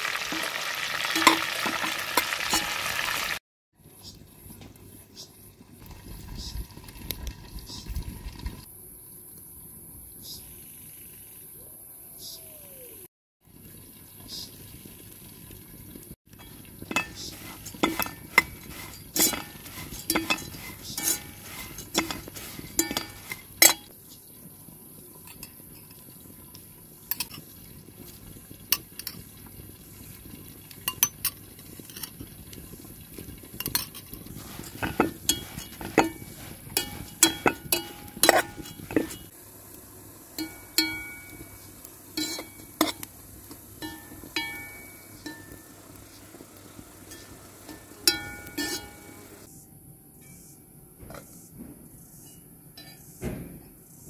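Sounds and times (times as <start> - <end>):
metal spoon scraping metal pot: 16.4 - 23.9, 33.5 - 39.3, 42.2 - 43.1, 47.1 - 49.3.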